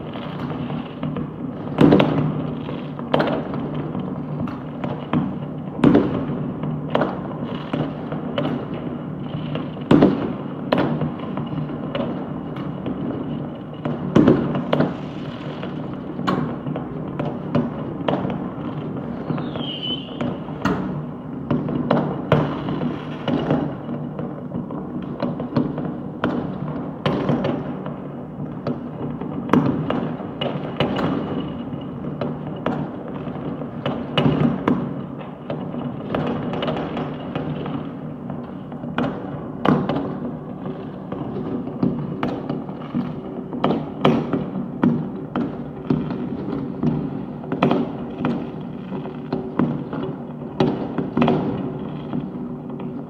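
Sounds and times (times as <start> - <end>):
fireworks bangs and thuds: 0.0 - 53.0
loud firework booms: 13.8 - 23.8.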